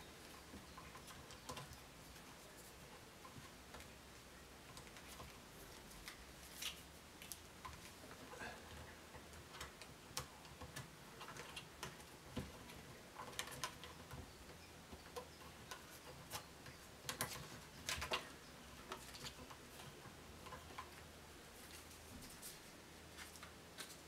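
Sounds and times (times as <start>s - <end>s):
plastic clicks and rattles: 8.7s - 21.0s.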